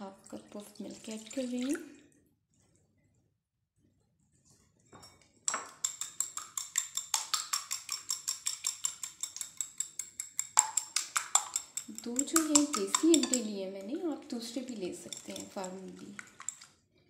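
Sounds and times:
fork beating eggs in glass bowl: 0:05.5 - 0:16.8.

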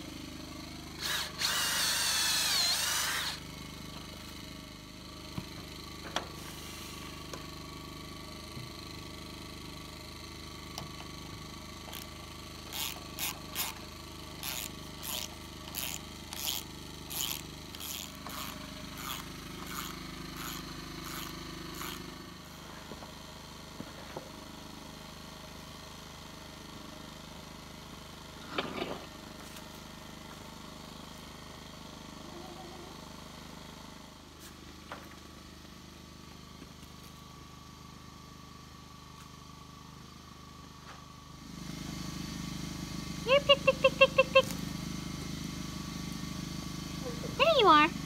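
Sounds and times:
screwdriver rasping strokes: 0:01.0 - 0:03.4, 0:11.9 - 0:12.1, 0:12.7 - 0:13.8, 0:14.4 - 0:22.0.

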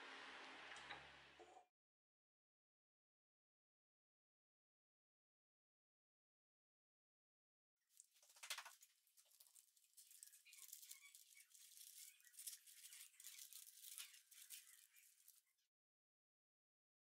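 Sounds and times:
baking paper crinkling: 0:07.9 - 0:15.7.

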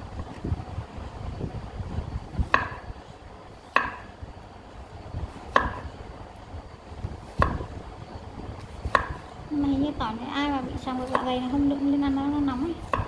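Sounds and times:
cleaver knocking on cutting board: 0:03.8 - 0:04.0, 0:05.5 - 0:05.8, 0:07.4 - 0:07.7.

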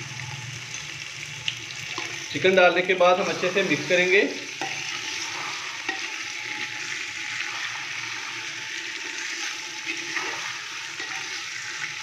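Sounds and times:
chicken sizzling in hot fat: 0:00.0 - 0:12.0
spoon stirring in pot: 0:03.2 - 0:11.9.

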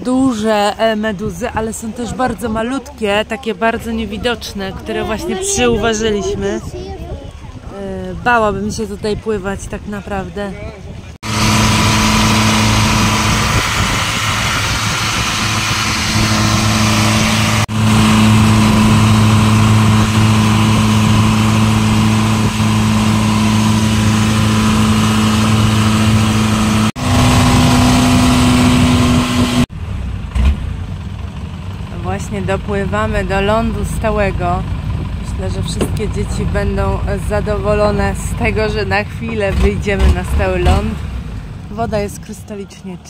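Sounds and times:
boat engine droning: 0:00.0 - 0:43.0
wind and water hiss: 0:11.5 - 0:29.5.

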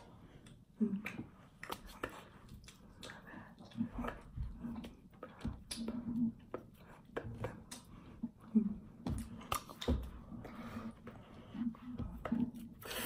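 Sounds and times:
hands slapping and tapping: 0:09.0 - 0:10.3.

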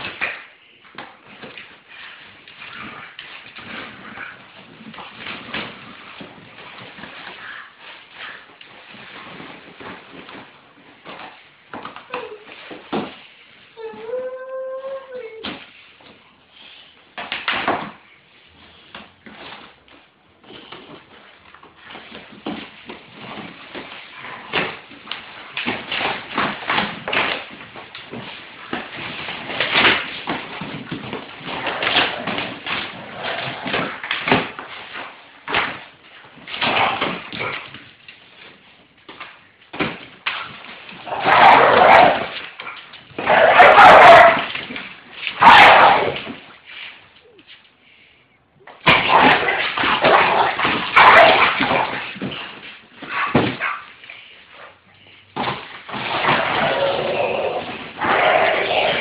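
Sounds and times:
dog growling: 0:56.0 - 0:59.0.

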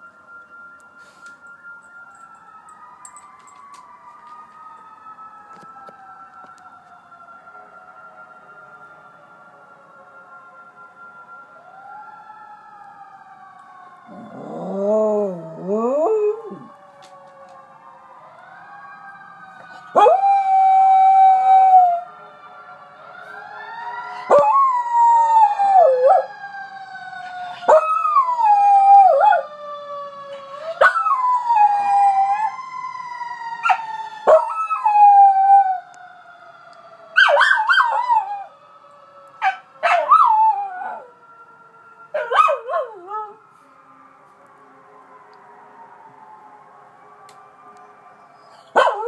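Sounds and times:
fire truck siren wailing: 0:00.0 - 0:49.0
dog howling: 0:14.1 - 0:16.8, 0:19.9 - 0:22.0.

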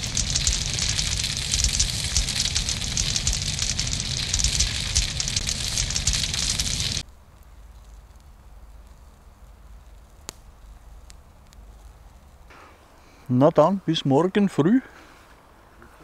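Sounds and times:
low rumble: 0:00.0 - 0:07.0
campfire crackling: 0:00.0 - 0:13.3.

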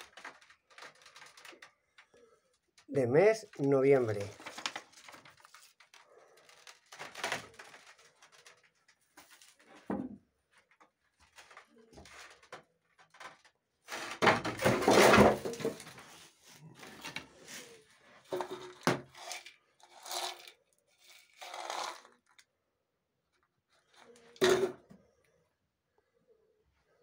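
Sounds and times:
metal tins rustling and scraping: 0:13.9 - 0:22.2.

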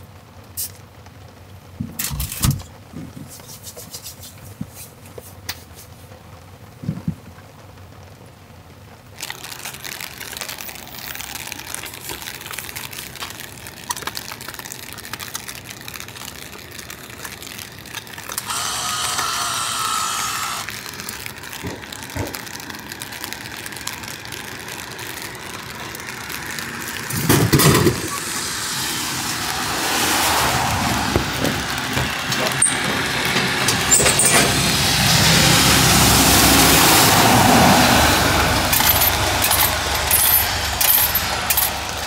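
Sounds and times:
steady rain falling: 0:00.0 - 0:42.0
vending machine bill acceptor whirring: 0:18.2 - 0:20.7, 0:38.6 - 0:41.9.

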